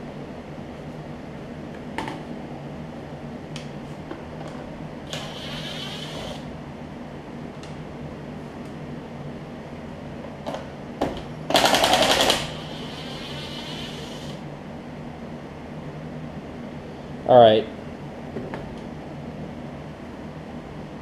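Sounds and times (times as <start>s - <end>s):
steady low hum: 0.0s - 21.0s
cordless drill whirring: 5.1s - 6.5s, 11.6s - 14.4s.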